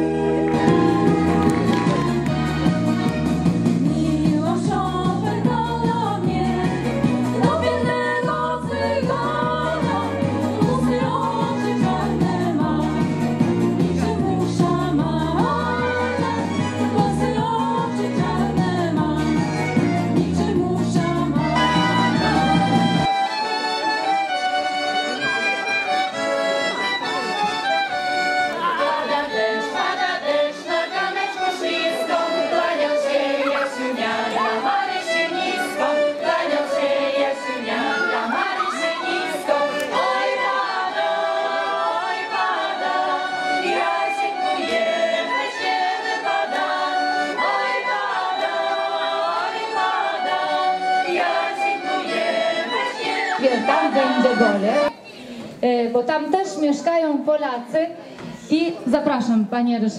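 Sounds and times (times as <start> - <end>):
violin: 0.0 - 55.0
accordion: 0.0 - 55.1
women's choir singing: 3.8 - 19.6, 20.2 - 23.1, 28.6 - 54.9.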